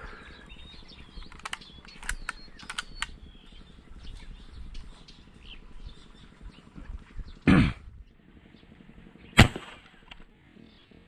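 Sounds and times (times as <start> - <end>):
sharp clicks and ticks: 1.1 - 3.2.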